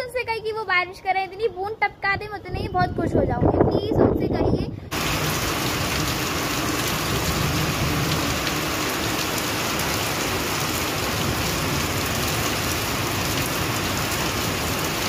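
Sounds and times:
rain falling on concrete: 4.9s - 15.0s.

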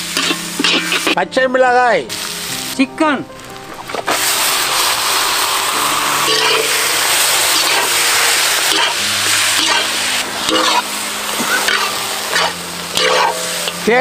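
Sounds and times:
meat and onions sizzling in oil: 0.0s - 1.2s, 1.8s - 14.0s
metal spatula scraping wok: 0.0s - 1.2s, 4.0s - 14.0s.

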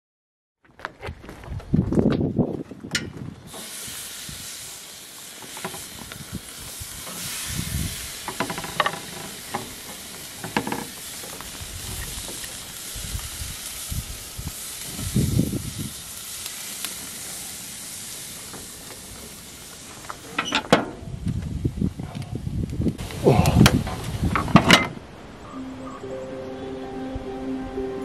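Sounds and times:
patties sizzling on grill: 3.5s - 20.5s.

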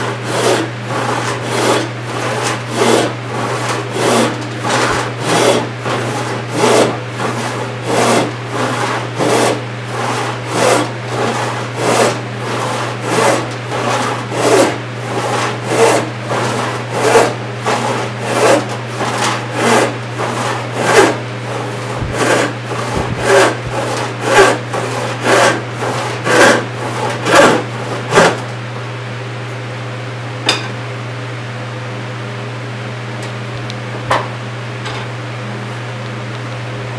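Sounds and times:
hand saw ripping wood: 0.0s - 28.6s.

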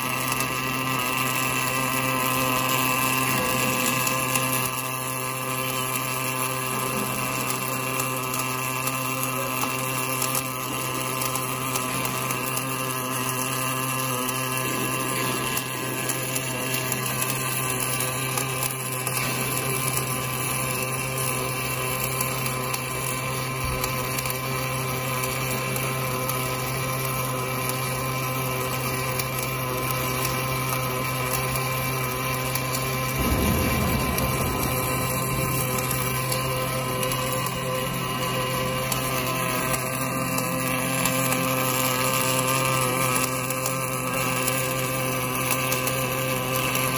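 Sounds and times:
welder electric hum: 0.0s - 46.9s
welding arc crackle: 0.0s - 46.9s
low rumble: 32.9s - 39.6s.

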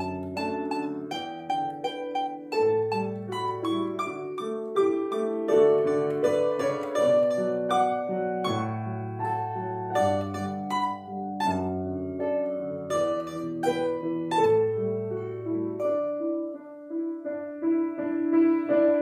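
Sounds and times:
piano accompaniment: 0.0s - 19.0s
plucked string folk melody: 0.0s - 19.0s.

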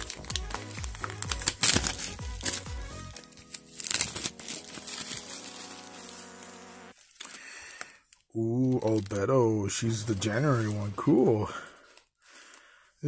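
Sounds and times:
background music with quick beat: 0.0s - 3.2s
plastic wrap crinkling and tearing: 0.0s - 12.6s.

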